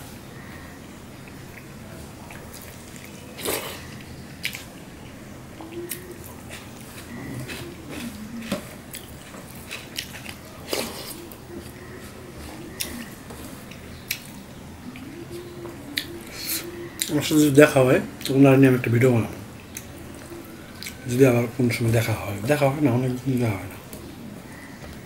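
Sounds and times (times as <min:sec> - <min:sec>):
person chewing: 0:01.2 - 0:17.2, 0:19.6 - 0:21.1.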